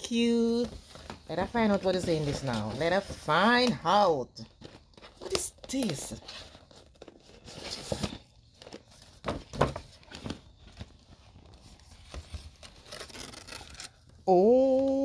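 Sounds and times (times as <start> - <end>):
gift wrapping tearing and crinkling: 4.4 - 14.2.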